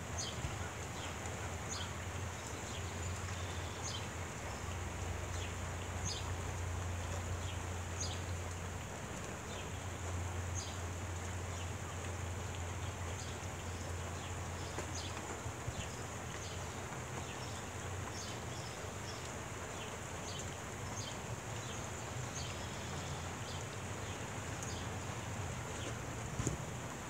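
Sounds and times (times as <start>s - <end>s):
steady rain falling: 0.0s - 27.0s.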